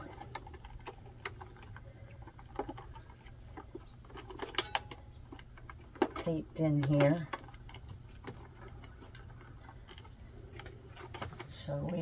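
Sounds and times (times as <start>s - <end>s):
wires and screwdriver rustling: 0.0s - 12.0s.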